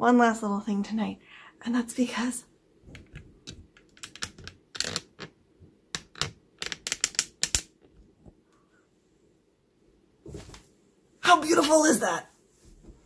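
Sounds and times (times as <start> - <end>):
cloth rustling and flapping: 10.2 - 10.8.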